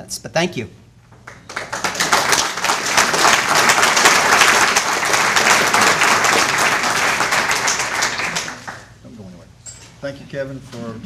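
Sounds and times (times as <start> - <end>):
audience applause: 1.3 - 9.0.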